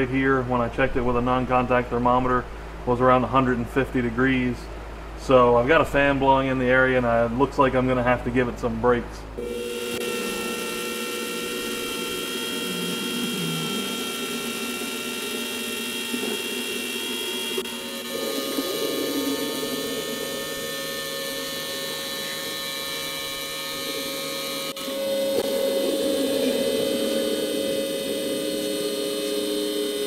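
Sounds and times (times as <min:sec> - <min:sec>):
electric router motor whining: 0:09.4 - 0:30.0.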